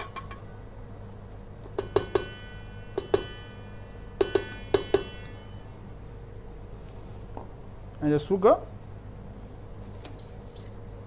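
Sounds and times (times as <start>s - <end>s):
knocks on steel mixing bowl: 1.8s - 2.4s.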